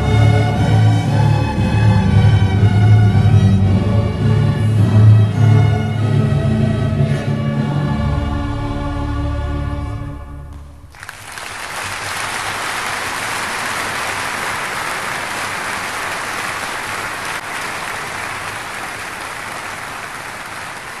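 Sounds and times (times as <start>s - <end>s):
choir orchestra and organ chord: 0.0s - 10.8s
audience applause: 10.9s - 21.0s.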